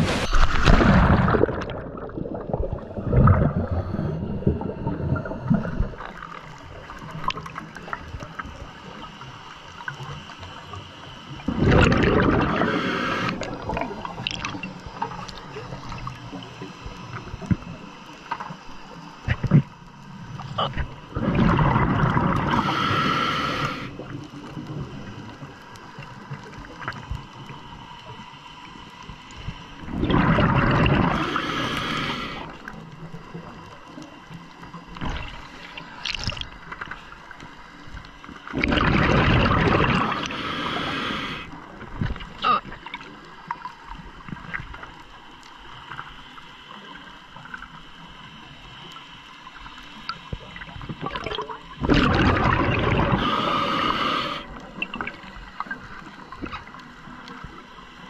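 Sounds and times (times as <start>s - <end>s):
underwater exhaust bubbles: 0.0s - 58.0s
faint clicks and crackles: 4.3s - 22.6s, 23.6s - 31.1s, 31.7s - 40.4s, 41.4s - 53.1s, 54.4s - 58.0s.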